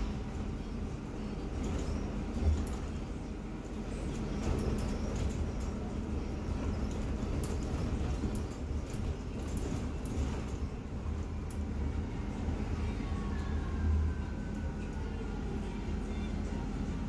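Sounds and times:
bus engine drone: 0:00.0 - 0:17.0
road noise: 0:00.0 - 0:17.0.

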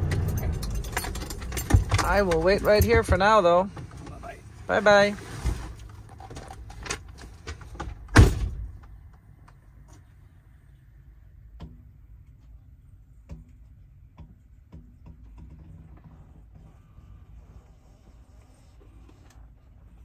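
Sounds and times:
truck door slamming shut: 0:08.1 - 0:08.7.

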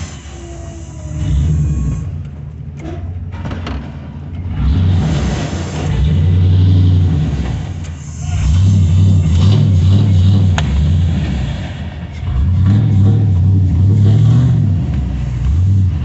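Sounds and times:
truck engine revving: 0:00.0 - 0:16.0.

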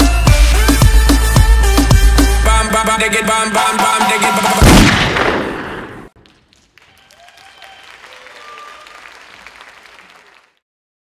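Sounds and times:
audience applauding: 0:06.2 - 0:10.6.

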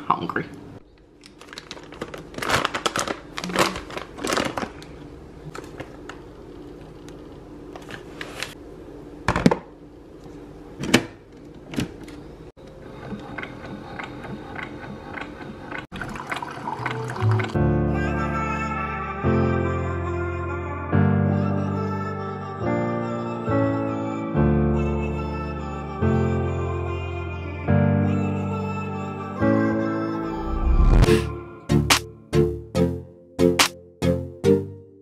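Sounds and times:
water running in sink: 0:15.7 - 0:17.6.

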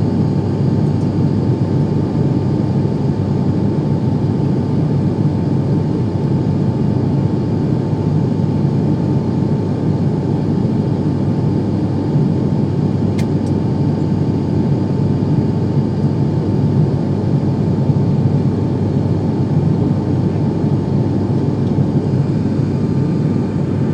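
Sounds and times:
airliner cabin engine drone: 0:00.0 - 0:23.9
brief click: 0:13.2 - 0:13.6.

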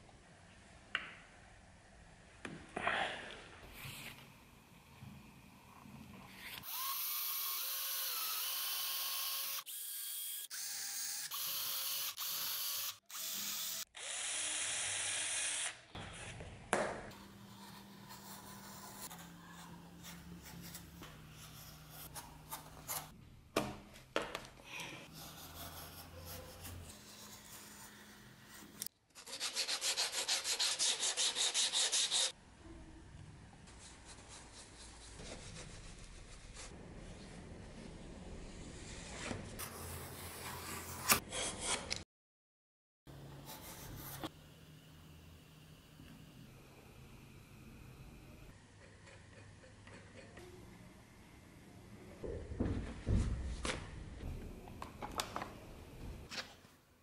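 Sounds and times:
cordless drill boring through leather: 0:06.6 - 0:15.8.

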